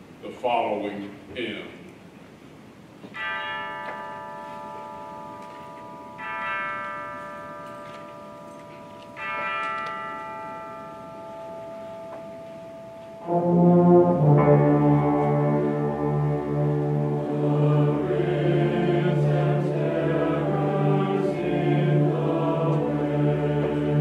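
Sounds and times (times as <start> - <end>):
wind ensemble playing: 13.2 - 24.0.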